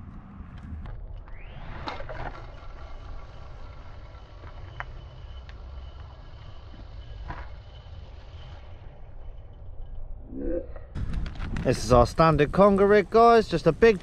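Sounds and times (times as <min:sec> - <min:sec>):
faint thin whine: 0:00.4 - 0:10.2
wind rumble on microphone: 0:10.3 - 0:14.0.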